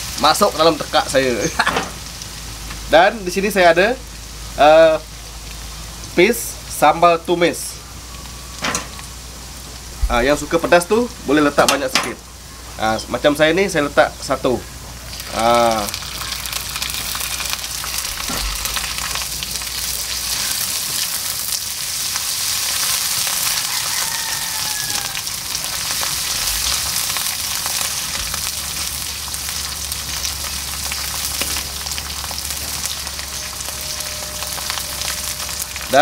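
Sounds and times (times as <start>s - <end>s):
chili paste sizzling in oil: 0.0s - 36.0s.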